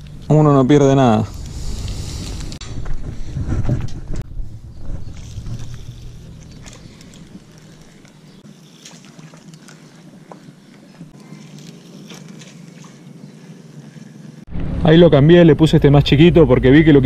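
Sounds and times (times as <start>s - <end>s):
wind rumbling on microphone: 1.2s - 8.2s.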